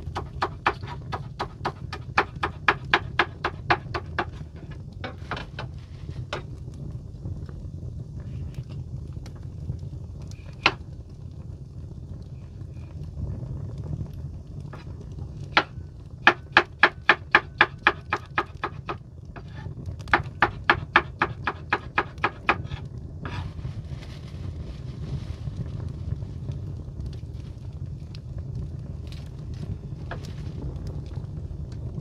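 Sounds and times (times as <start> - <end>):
steady low rumble: 0.0 - 17.7, 22.2 - 32.0
knife chopping on cutting board: 0.2 - 4.4, 15.6 - 23.4.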